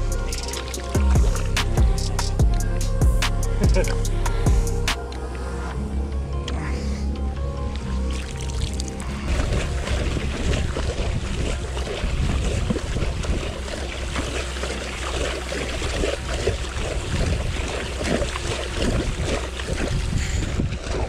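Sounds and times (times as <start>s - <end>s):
fish thrashing and splashing: 0.0s - 2.0s, 8.0s - 21.0s
wind rumble on microphone: 8.6s - 21.0s.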